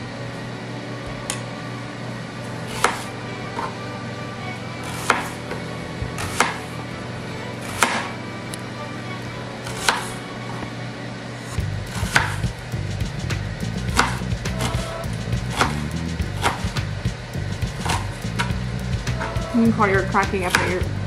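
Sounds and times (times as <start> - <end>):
steady low hum: 0.0 - 21.0
knife chopping on cutting board: 2.7 - 3.7, 4.8 - 6.7, 7.6 - 8.1, 9.6 - 10.1, 11.9 - 12.5, 13.8 - 16.9, 17.6 - 19.5, 20.3 - 20.9.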